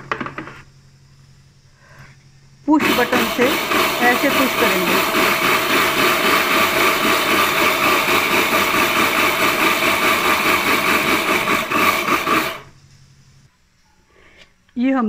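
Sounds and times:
mixer grinder grinding grain: 0:02.7 - 0:12.7.

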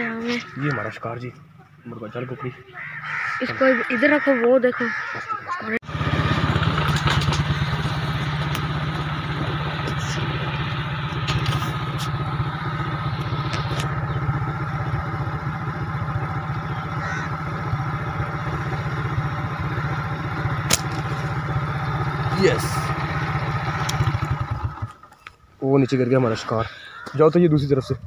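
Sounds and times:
small engine idling: 0:05.8 - 0:25.4.

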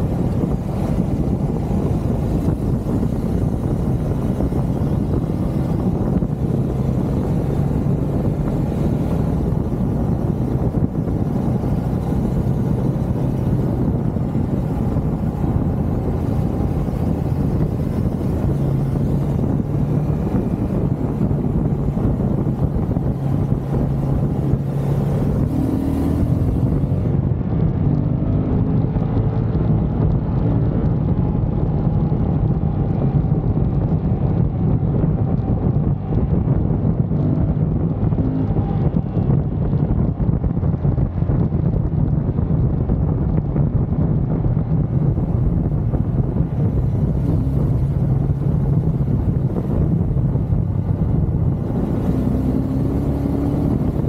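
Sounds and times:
motorcycle engine riding: 0:00.0 - 0:54.0
wind noise on microphone: 0:00.0 - 0:54.0.

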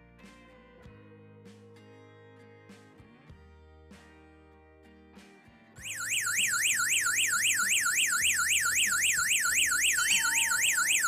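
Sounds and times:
fast siren-like warble: 0:05.8 - 0:11.0.

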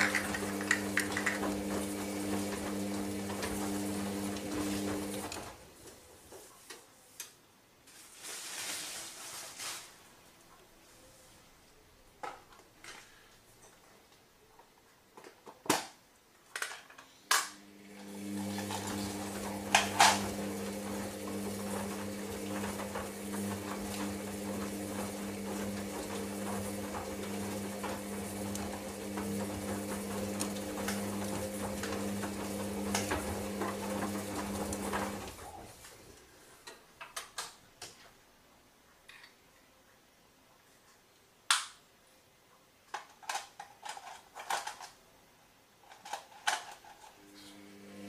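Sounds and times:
washing machine motor hum: 0:00.0 - 0:06.2, 0:17.6 - 0:36.1, 0:47.2 - 0:48.0.

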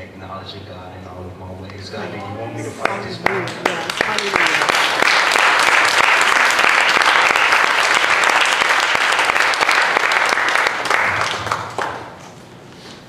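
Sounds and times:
congregation applauding: 0:02.7 - 0:12.4.

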